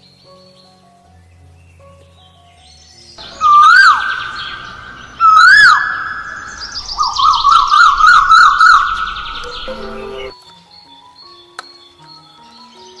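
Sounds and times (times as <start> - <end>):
high-pitched warbling siren tone: 3.2 - 10.3.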